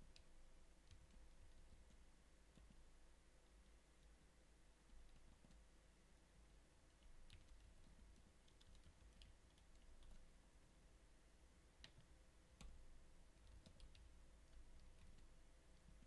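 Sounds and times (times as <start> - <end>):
faint keyboard keystrokes: 7.0 - 10.3, 13.4 - 16.0.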